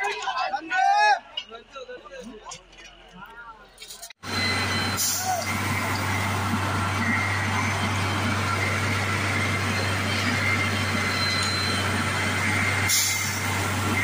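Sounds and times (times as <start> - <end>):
diesel engine humming with whine: 4.2 - 14.0.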